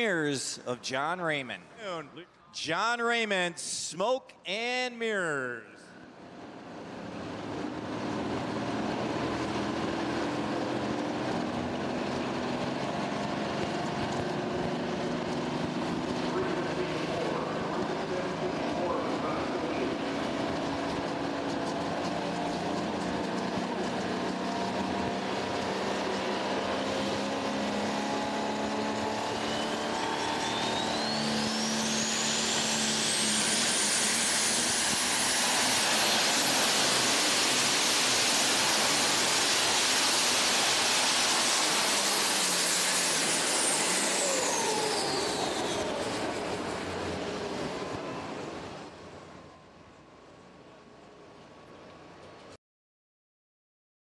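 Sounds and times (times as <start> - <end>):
diesel tractor engine: 6.1 - 49.2
high-pitched turbo whine: 7.2 - 49.0.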